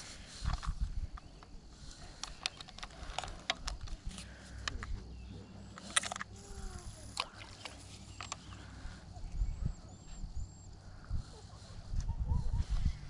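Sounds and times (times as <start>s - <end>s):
sharp clicks and ticks: 0.5s - 5.0s, 5.7s - 8.6s
steady low rumble: 2.9s - 13.0s.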